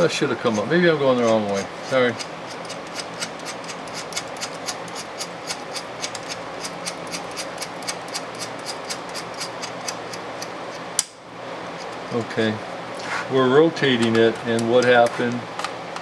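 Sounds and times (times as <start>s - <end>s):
sharp snap: 11.0s - 11.2s.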